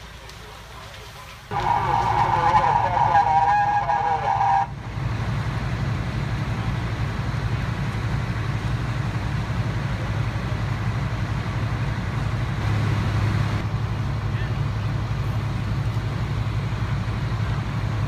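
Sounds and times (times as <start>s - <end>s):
diesel engine droning: 1.4s - 18.0s
horn-like tone: 1.5s - 4.7s.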